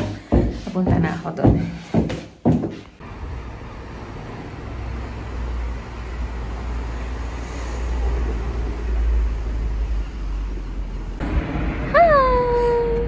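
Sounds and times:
street low rumble: 3.0s - 13.0s.

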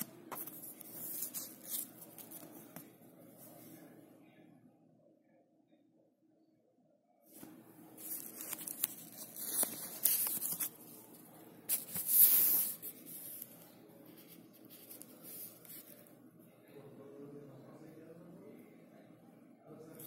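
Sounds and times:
plastic packaging crackling: 8.0s - 11.1s.

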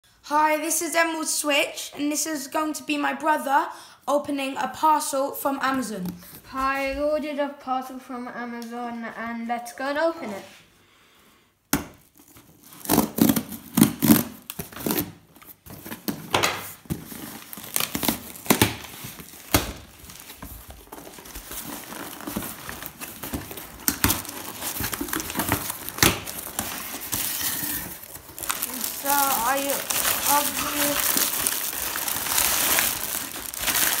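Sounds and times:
packing paper rustling: 12.0s - 34.0s
knife cutting packing tape: 12.2s - 15.2s.

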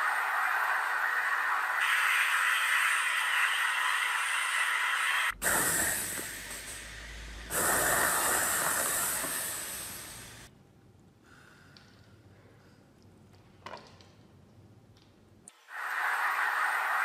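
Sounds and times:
steady hissing: 0.0s - 10.5s, 15.5s - 17.0s.

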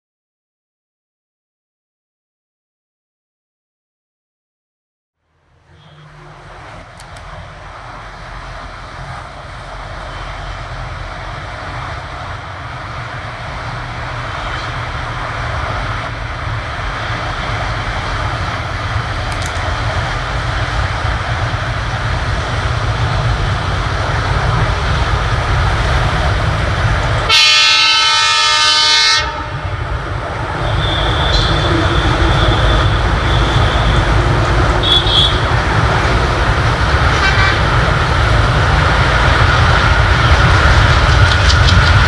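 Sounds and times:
locomotive engine rumble: 5.6s - 42.0s
train wheel noise: 5.6s - 42.0s
locomotive horn blast: 27.3s - 29.9s, 30.6s - 35.6s, 37.1s - 37.9s.

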